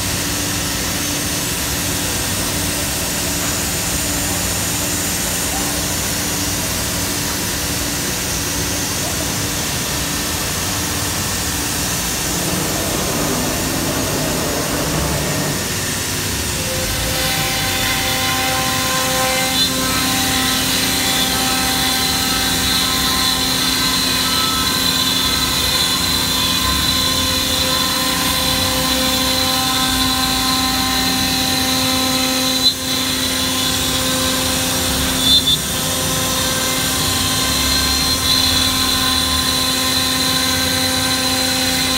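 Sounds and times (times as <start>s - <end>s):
vacuum pump high whine: 0.0s - 18.8s
cnc router mechanical drone: 0.0s - 41.9s.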